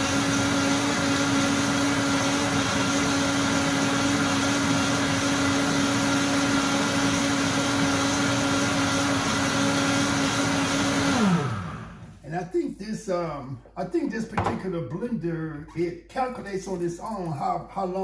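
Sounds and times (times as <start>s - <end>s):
thick smoothie churning: 0.0s - 12.1s
blender motor whine: 0.0s - 12.2s.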